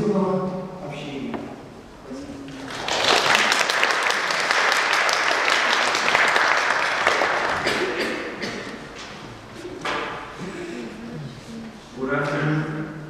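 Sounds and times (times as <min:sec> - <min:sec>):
audience applauding: 0:02.6 - 0:08.4.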